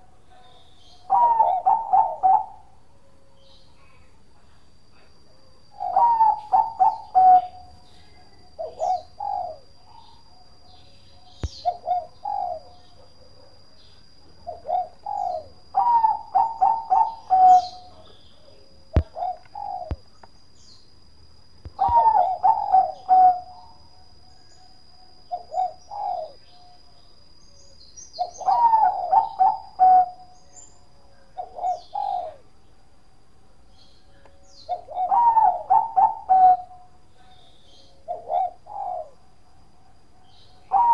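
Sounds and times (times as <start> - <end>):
dove cooing: 0.0 - 2.8, 5.0 - 10.2, 11.2 - 13.5, 14.4 - 20.1, 21.8 - 23.8, 25.3 - 26.7, 28.2 - 30.4, 31.3 - 32.5, 34.6 - 39.3, 40.6 - 40.9
small birds chirping: 3.4 - 32.4.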